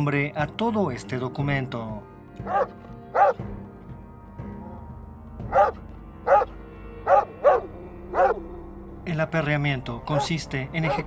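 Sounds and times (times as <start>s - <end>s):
background music: 0.0s - 11.0s
dog barking: 2.4s - 3.4s, 5.5s - 8.4s, 10.1s - 11.0s.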